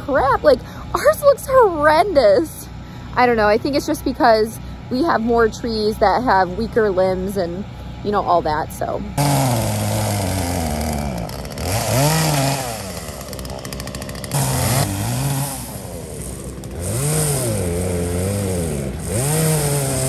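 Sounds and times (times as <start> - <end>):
chainsaw revving: 9.1 - 20.0.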